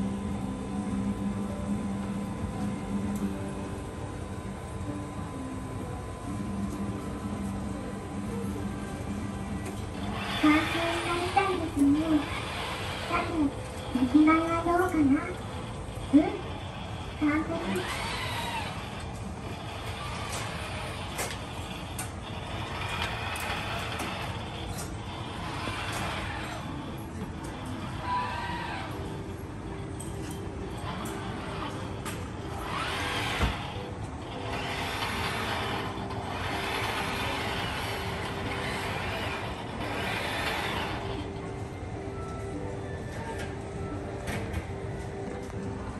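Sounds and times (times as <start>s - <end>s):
steady background hum: 0.0s - 45.9s
robot arm motors whirring: 9.7s - 29.3s, 30.0s - 41.5s.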